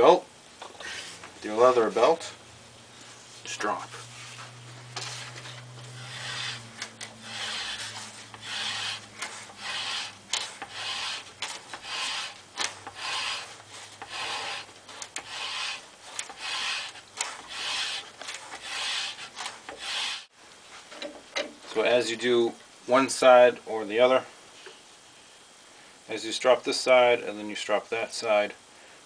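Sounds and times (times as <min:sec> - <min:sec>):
leather strop rubbing on axe: 0:04.0 - 0:20.2.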